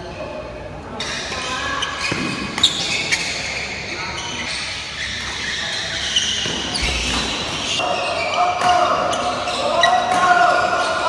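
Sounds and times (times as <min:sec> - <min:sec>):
shoes squeaking on court: 0:01.0 - 0:11.0
rackets hitting shuttlecock: 0:02.0 - 0:02.8, 0:06.4 - 0:07.8, 0:08.5 - 0:10.9.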